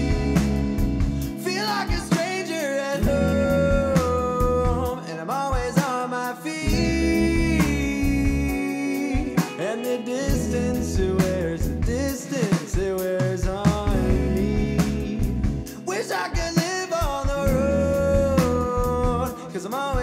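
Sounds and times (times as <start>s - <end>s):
heavy bass line: 0.0s - 5.0s, 6.6s - 9.6s, 10.2s - 15.9s, 17.1s - 19.4s
rock band music: 0.0s - 20.0s
sliding lead melody: 0.0s - 20.0s.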